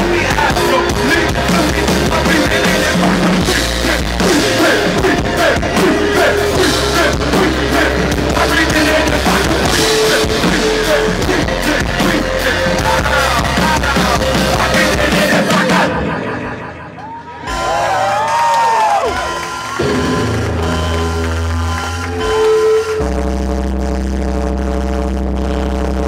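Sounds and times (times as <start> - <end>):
person singing into microphone: 0.0 - 16.8
live band playing: 0.0 - 24.1.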